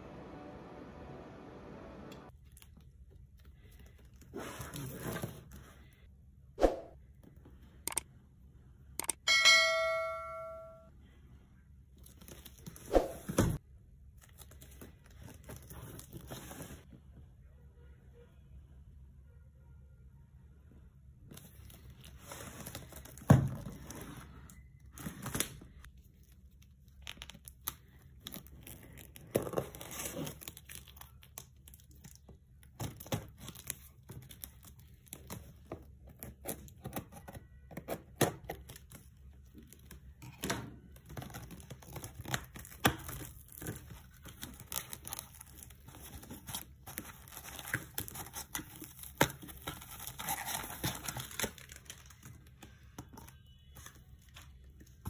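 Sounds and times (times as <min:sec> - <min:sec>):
plastic wrapping tearing and crinkling: 0:25.1 - 0:37.3, 0:41.0 - 0:52.7.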